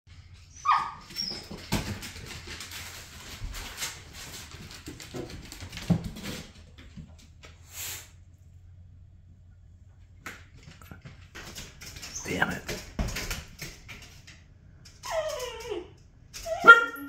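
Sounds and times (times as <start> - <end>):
dog whining: 0.4 - 1.7, 15.0 - 17.0
dog claws clicking on wood: 10.2 - 15.8.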